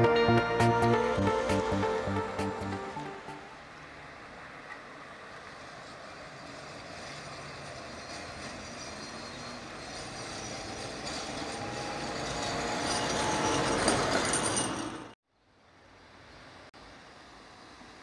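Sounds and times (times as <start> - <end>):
tram wheels rumbling on track: 3.8 - 15.2.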